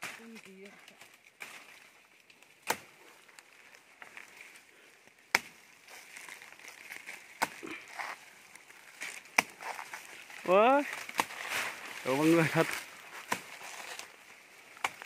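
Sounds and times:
blade chopping tree trunk: 2.6 - 3.0, 5.3 - 5.6, 7.3 - 7.7, 9.2 - 9.9, 10.9 - 11.5, 13.2 - 14.0, 14.8 - 15.0.

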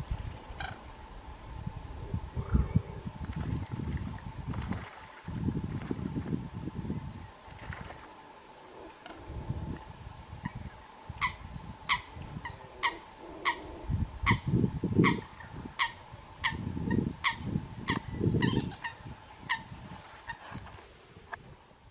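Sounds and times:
low uneven rumble: 0.0 - 21.9
coots calling: 11.2 - 20.5.

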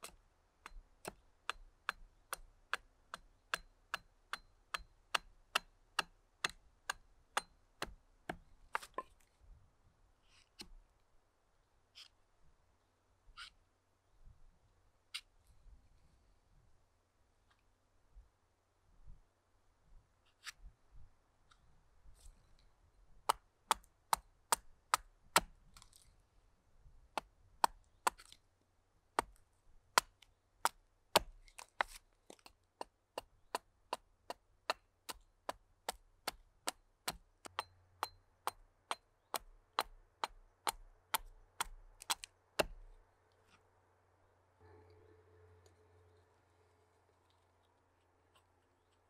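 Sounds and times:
axe chopping wood: 0.0 - 9.2, 23.3 - 25.6, 30.0 - 42.9.

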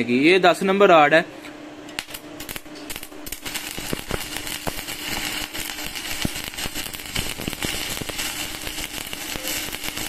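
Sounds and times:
welder low hum: 1.9 - 10.0
welding arc crackling and popping: 1.9 - 10.0.

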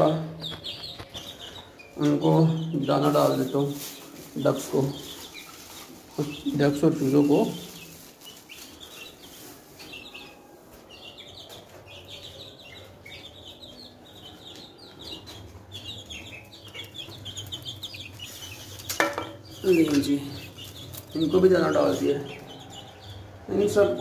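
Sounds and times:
baby chicks peeping: 0.0 - 24.0
knock and rustle: 18.9 - 19.5.

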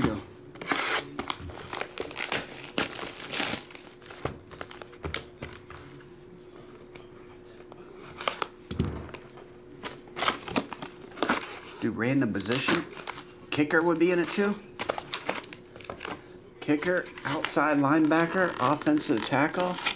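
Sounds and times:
shrink wrap crinkling: 0.7 - 5.3, 12.4 - 19.9.

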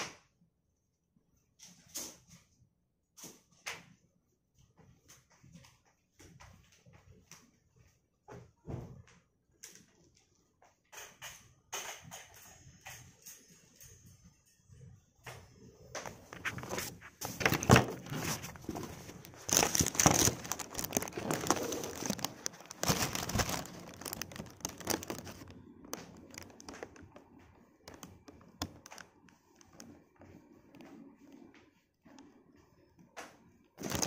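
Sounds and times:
rustling and crinkling fabric: 15.2 - 34.0.

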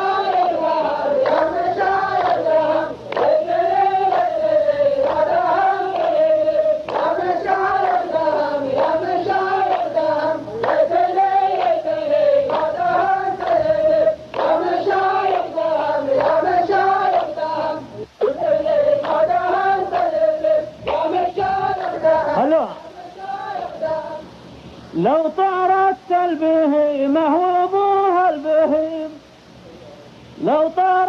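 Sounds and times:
men's chorus chanting in unison: 0.0 - 24.2.

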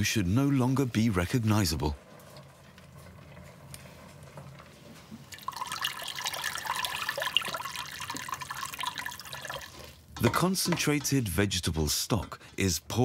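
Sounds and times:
thick liquid pouring into metal pot: 5.3 - 10.1.

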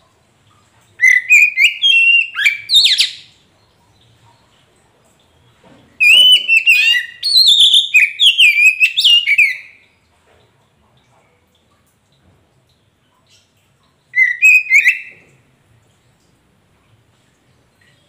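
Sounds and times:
bird whistled song: 1.0 - 3.3, 6.0 - 9.8, 14.1 - 15.3.

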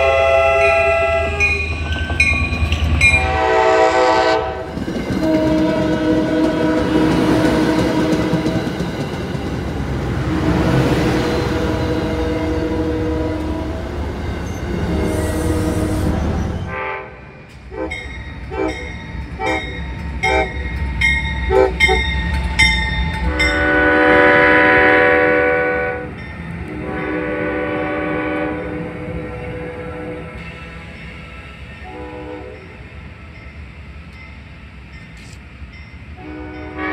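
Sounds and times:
locomotive air horn toots and blasts: 0.0 - 1.6, 3.2 - 8.6, 10.3 - 13.9, 14.9 - 20.7, 21.5 - 22.1, 23.3 - 30.4, 31.8 - 32.8, 36.2 - 36.9
train horn: 0.0 - 1.7, 3.1 - 8.7, 10.2 - 14.0, 14.6 - 20.7, 21.5 - 22.1, 23.3 - 30.5, 31.7 - 32.9, 36.2 - 36.9
train wheels rumbling: 0.0 - 36.9.

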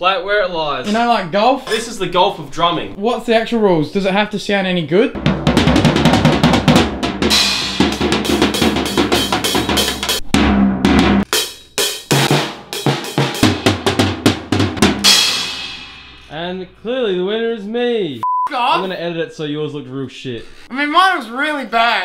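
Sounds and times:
drum kit played fast: 5.1 - 16.5
cymbal ringing: 15.0 - 16.7.

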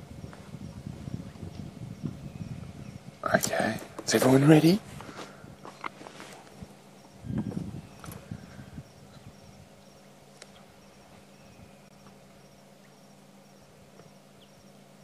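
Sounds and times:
low steady hum: 0.0 - 15.0
high-pitched insect chirping: 6.5 - 14.8.

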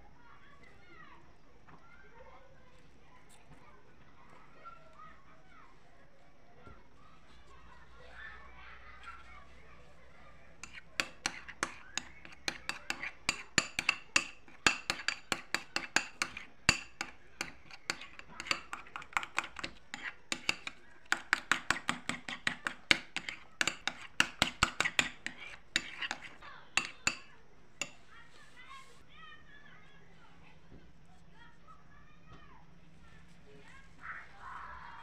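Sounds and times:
spoon clinking against ceramic bowl: 10.6 - 28.1.

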